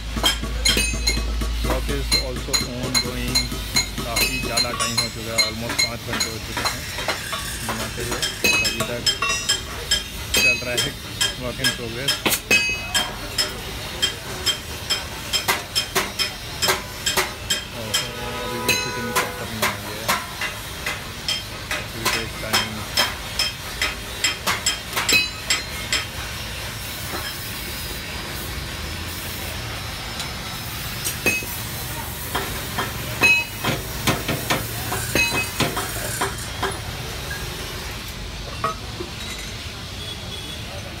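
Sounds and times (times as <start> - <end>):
metal tool clanking on steel tube: 0.2 - 26.2, 32.2 - 37.5
steady hiss: 1.0 - 38.6.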